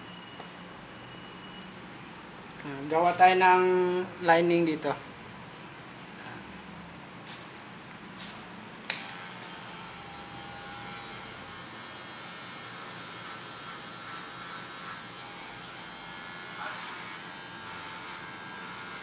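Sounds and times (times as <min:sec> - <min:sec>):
hair clipper whirring: 0:08.9 - 0:19.0.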